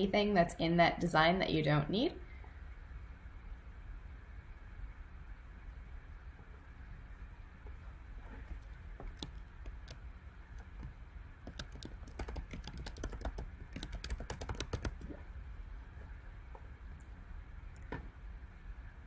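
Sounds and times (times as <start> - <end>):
typing on computer keyboard: 9.0 - 10.0, 10.6 - 15.2.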